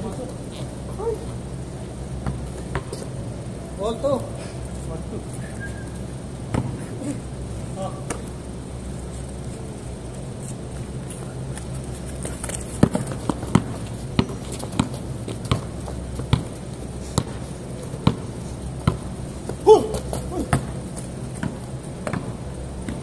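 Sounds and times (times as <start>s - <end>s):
basketball bouncing on concrete: 2.2s - 3.1s, 6.5s - 6.8s, 12.7s - 16.6s, 17.2s - 23.0s
shoe squeal: 5.4s - 6.1s.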